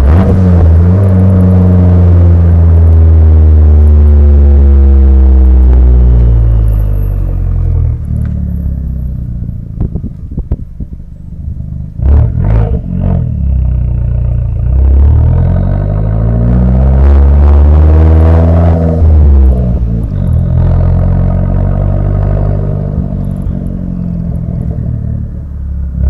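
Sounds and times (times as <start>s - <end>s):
car engine exhaust note: 0.0s - 26.0s
exhaust crackles and bangs: 9.7s - 11.0s.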